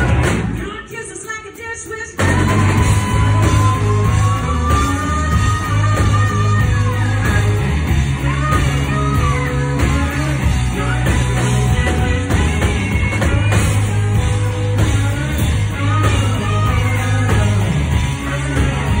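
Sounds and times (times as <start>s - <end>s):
live rock band playing: 0.0s - 19.0s
woman singing: 0.6s - 19.0s.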